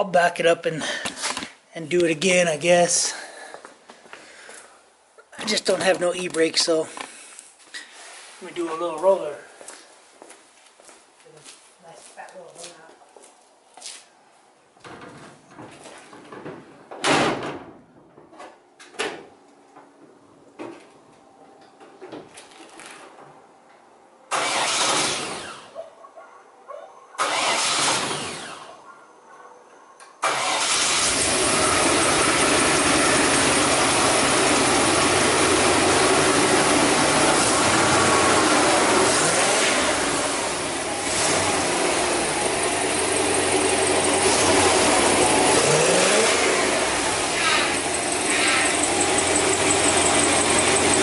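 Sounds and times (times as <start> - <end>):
pickup engine starting and running: 24.3 - 25.7, 27.2 - 28.8, 30.2 - 51.0.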